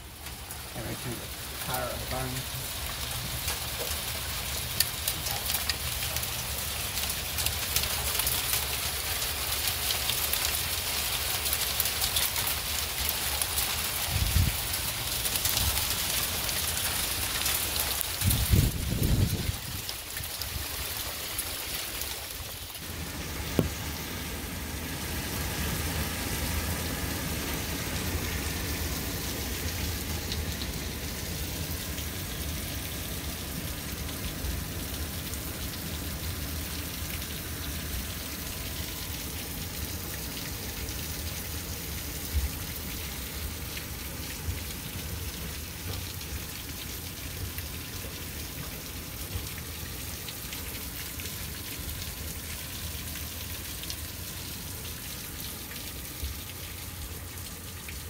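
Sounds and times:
hail and rain on concrete: 0.0s - 24.2s, 25.3s - 58.0s
sharp hail ticks: 0.2s - 18.6s.

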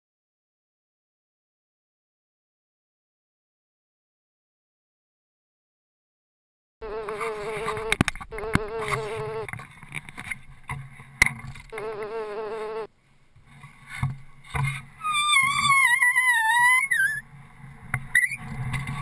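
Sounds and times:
flying insect buzzing: 6.8s - 9.5s, 11.7s - 12.9s
wavering high whistle tone: 15.0s - 17.2s.

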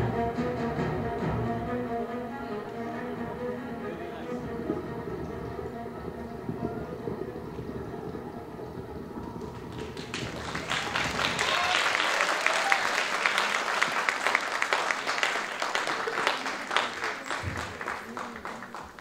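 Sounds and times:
performance music: 0.0s - 18.7s
audience applauding: 4.0s - 19.0s.

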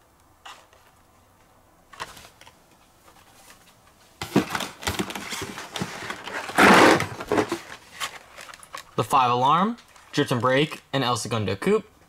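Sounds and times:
cardboard and plastic rustling: 0.4s - 9.0s, 9.7s - 10.9s
plastic packaging crinkle: 9.7s - 10.2s.

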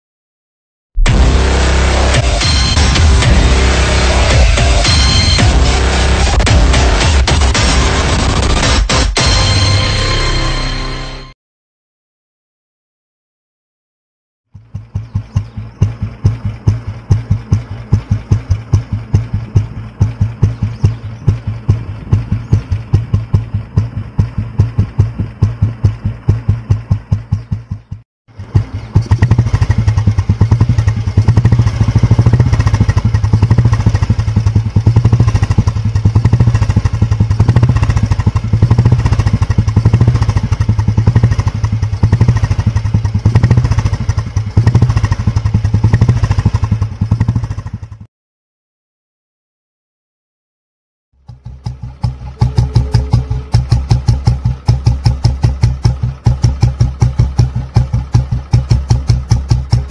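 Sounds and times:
motorcycle engine thumping: 14.5s - 48.1s, 51.2s - 59.9s.

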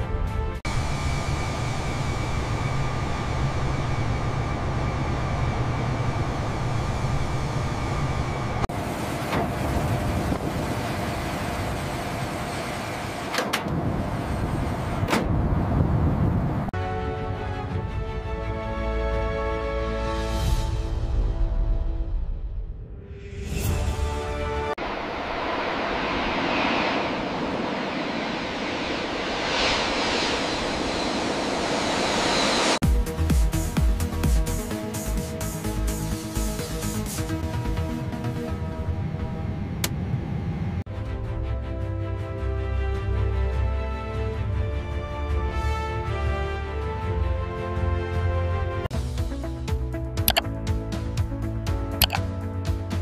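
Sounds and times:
airliner flight noise: 0.0s - 18.6s, 24.7s - 32.8s, 37.5s - 40.9s
jet engines at takeoff thrust: 0.7s - 16.7s, 24.8s - 32.8s.

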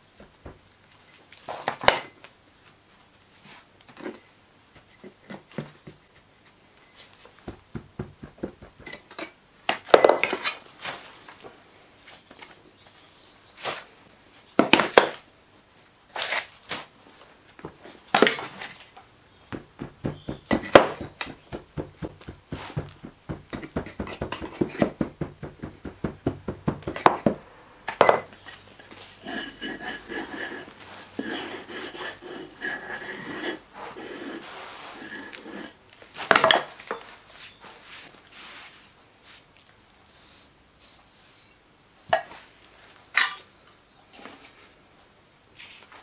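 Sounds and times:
heavy thumps of sand: 0.0s - 0.7s, 7.4s - 9.1s, 19.4s - 28.3s
hand rammer tamping knocks: 7.4s - 9.2s, 19.5s - 28.3s
sand rustling: 19.5s - 27.4s.

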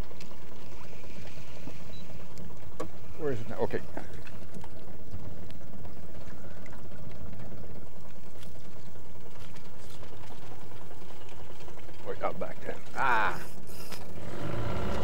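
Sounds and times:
low motor rumble: 0.0s - 15.0s
water rushing along a boat: 0.0s - 15.0s.

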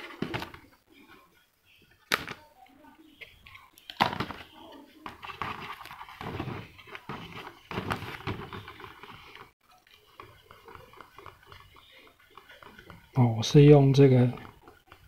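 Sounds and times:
fingertip rubbing plastic shell: 5.1s - 15.0s.

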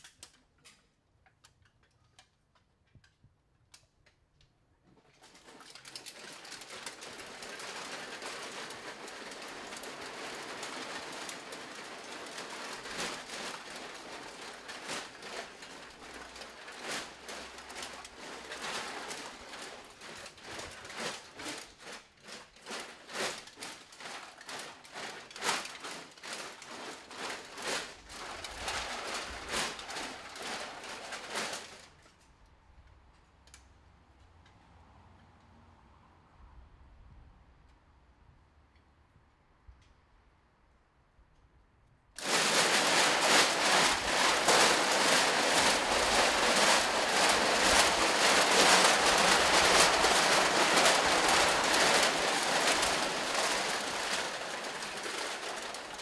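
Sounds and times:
aluminium cans rattling: 5.2s - 31.9s, 42.2s - 56.0s.

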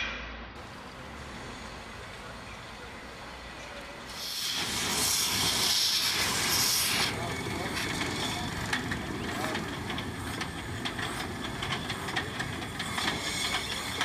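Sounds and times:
steam locomotive rumble: 0.0s - 14.0s
steam escaping loudly: 4.0s - 8.6s, 12.8s - 14.0s.

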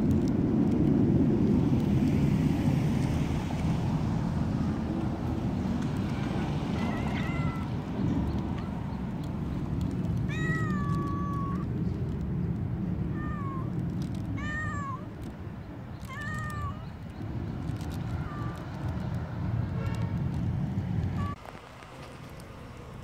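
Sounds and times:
low background rumble: 0.0s - 23.0s
cat meowing: 6.7s - 7.8s, 10.2s - 11.7s, 13.1s - 15.2s, 16.0s - 17.0s, 17.9s - 18.8s.

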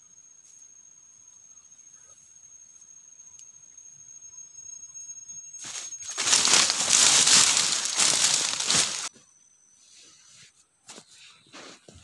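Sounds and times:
foliage rustling: 5.6s - 9.1s
footsteps crunching through dry leaves: 5.6s - 9.1s.

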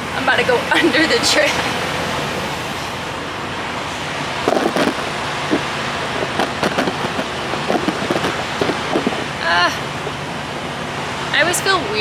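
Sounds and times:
vehicle noise: 0.0s - 12.0s
irregular clicks and knocks: 4.4s - 9.3s.

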